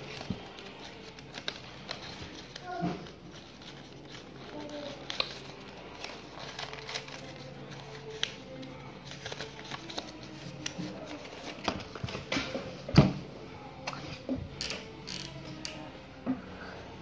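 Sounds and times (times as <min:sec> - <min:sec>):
paper crinkling and clicking: 0:00.0 - 0:12.6.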